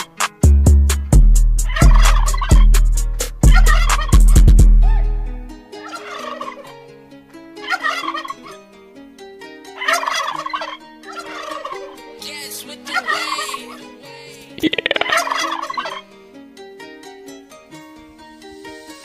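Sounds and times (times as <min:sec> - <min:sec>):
instrumental beat melody: 0:00.0 - 0:05.5, 0:14.6 - 0:15.5
turkey gobbling: 0:01.7 - 0:04.2, 0:04.8 - 0:06.7, 0:07.7 - 0:08.5, 0:09.8 - 0:12.0, 0:14.6 - 0:16.0.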